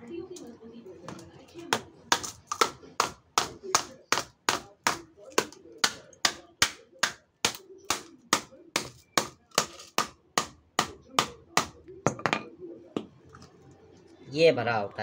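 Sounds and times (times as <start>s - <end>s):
hammer striking plastic cartridge: 2.1s - 12.2s.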